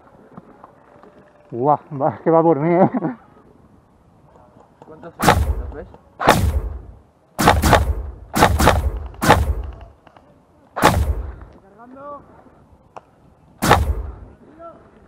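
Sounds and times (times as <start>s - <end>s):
airsoft rifle shots: 5.2s - 9.9s, 10.8s - 11.5s, 13.6s - 14.3s.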